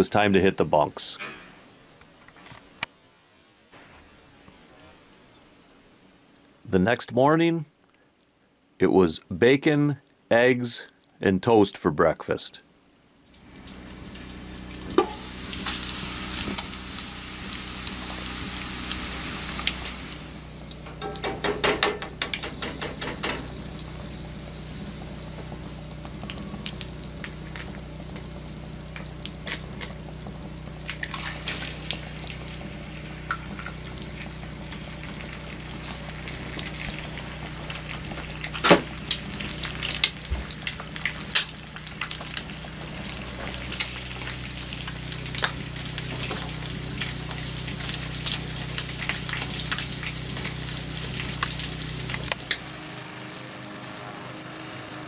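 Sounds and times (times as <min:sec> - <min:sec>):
egg sizzling in grease: 0:13.3 - 0:53.4
grease popping and spattering: 0:30.8 - 0:32.6, 0:33.2 - 0:52.6.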